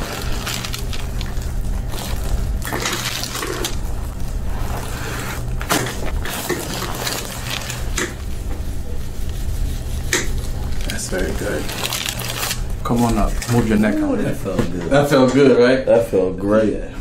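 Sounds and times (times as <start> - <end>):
hands rubbing on skin and paper: 0.0 - 13.4
steady low hum: 0.0 - 17.0.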